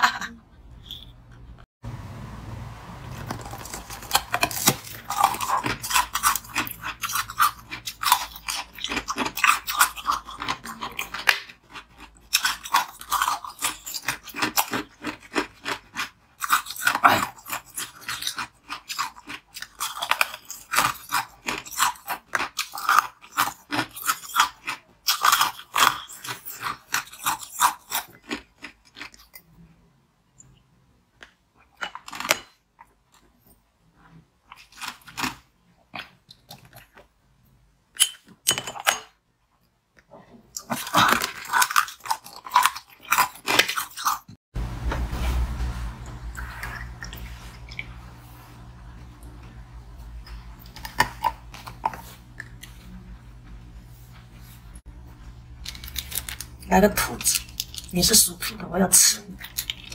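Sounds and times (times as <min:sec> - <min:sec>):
crunching ice: 0:03.2 - 0:29.2, 0:55.6 - 0:59.9.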